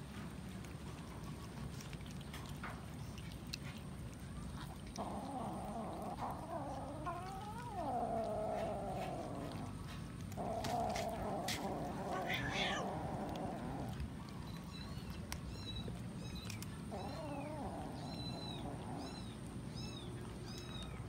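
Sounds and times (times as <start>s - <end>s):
cat yowling: 5.0s - 9.6s, 10.4s - 14.0s.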